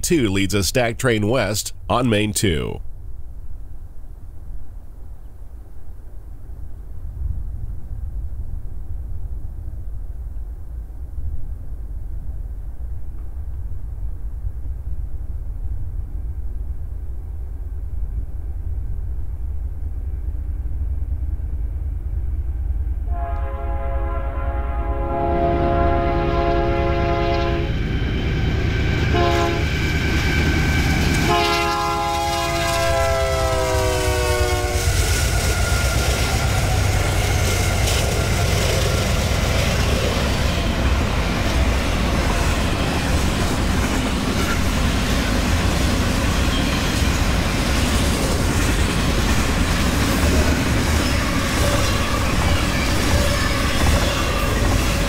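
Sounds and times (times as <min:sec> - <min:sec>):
locomotive horn blasts: 0:23.1 - 0:27.7, 0:29.1 - 0:29.8, 0:31.2 - 0:34.9
train wheels clattering on rails: 0:27.8 - 0:33.0, 0:34.8 - 0:55.0.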